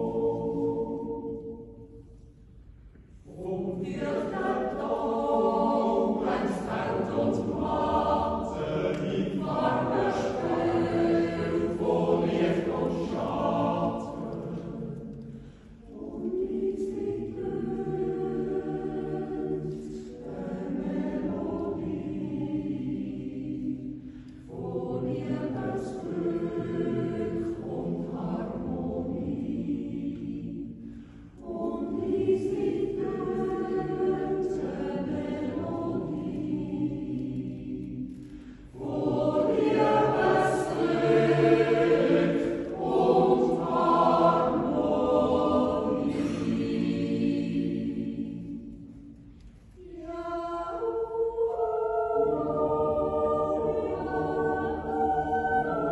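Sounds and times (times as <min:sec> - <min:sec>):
choir singing a cappella: 0:00.0 - 0:55.9.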